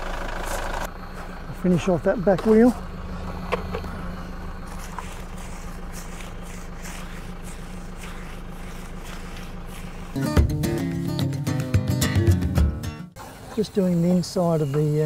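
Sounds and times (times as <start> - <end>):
stiff brush scrubbing tyre: 0.0 - 11.6
engine idling: 0.0 - 15.0.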